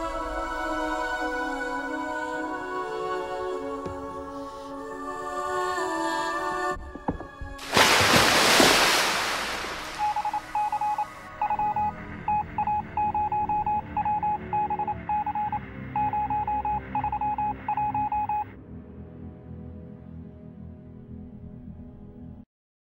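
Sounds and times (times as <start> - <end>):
morse code beeping: 10.0 - 18.5.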